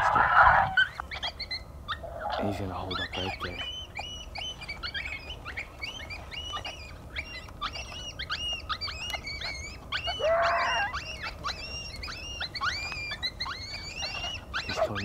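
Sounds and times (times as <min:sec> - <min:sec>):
coyotes yipping and howling: 0:00.0 - 0:15.0
low rising coyote call: 0:00.0 - 0:15.0.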